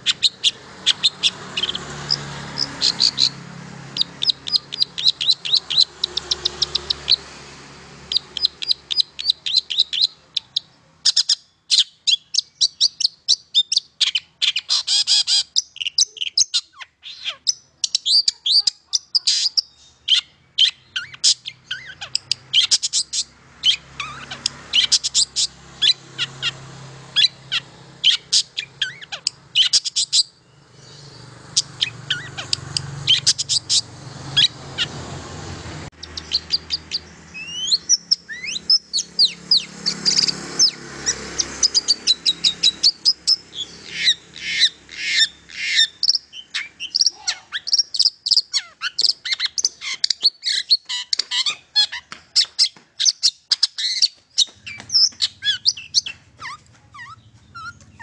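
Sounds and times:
bird singing high chirping notes: 0:00.0 - 0:35.0, 0:35.9 - 0:58.0.

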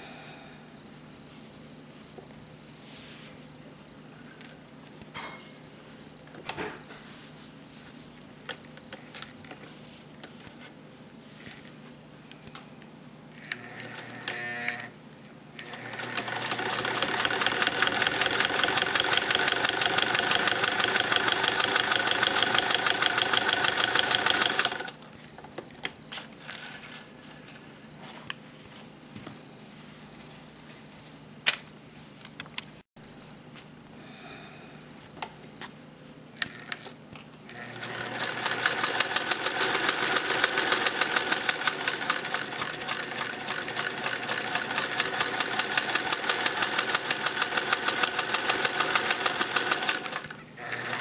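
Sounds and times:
sewing machine clatter: 0:15.6 - 0:24.9, 0:37.6 - 0:51.0.

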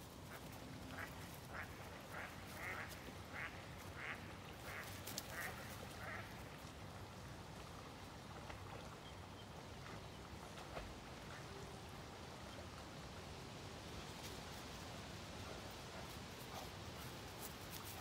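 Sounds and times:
duck quacking: 0:00.9 - 0:06.3.

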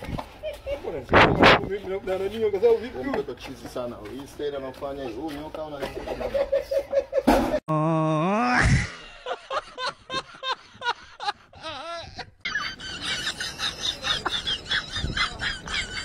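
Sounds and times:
man laughing: 0:00.4 - 0:01.1, 0:05.2 - 0:16.0.

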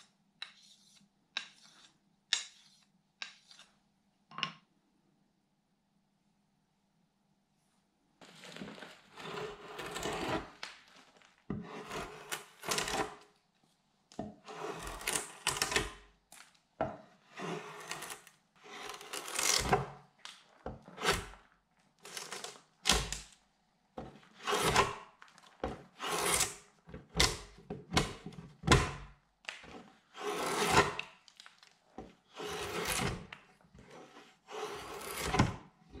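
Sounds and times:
draw knife shaving wood: 0:09.1 - 0:10.6, 0:11.5 - 0:13.3, 0:14.4 - 0:16.0, 0:17.2 - 0:19.9, 0:20.7 - 0:23.1, 0:24.1 - 0:27.4, 0:29.8 - 0:31.1, 0:32.2 - 0:35.7.

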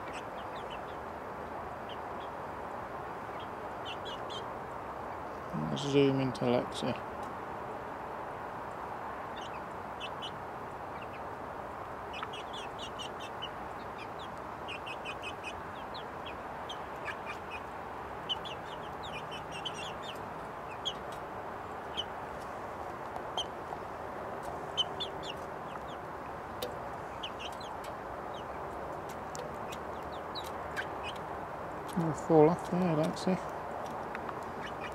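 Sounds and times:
chicks cheeping: 0:00.0 - 0:01.1, 0:03.2 - 0:04.5, 0:09.3 - 0:11.4, 0:12.0 - 0:22.2, 0:23.2 - 0:34.9.

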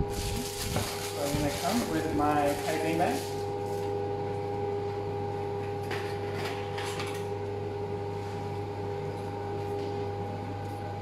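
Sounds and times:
rustling and handling noise: 0:00.0 - 0:04.0
electrical hum of machinery: 0:00.0 - 0:11.0.

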